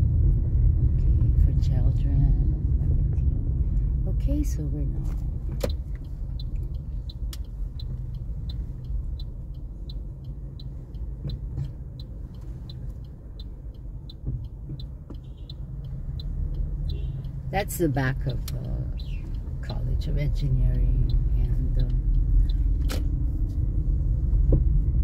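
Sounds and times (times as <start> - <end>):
car driving rumble: 0.0 - 25.0
turn signal ticking: 0.0 - 25.0.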